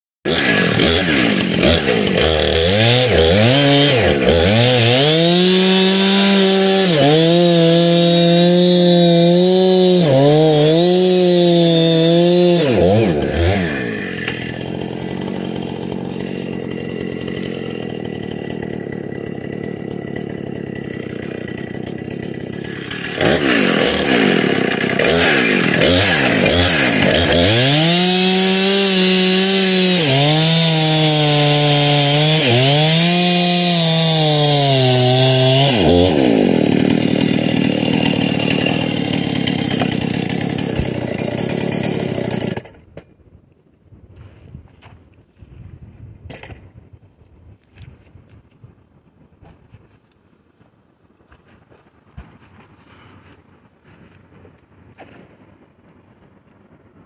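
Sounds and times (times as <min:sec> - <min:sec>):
chainsaw cutting log: 0:00.3 - 0:43.1.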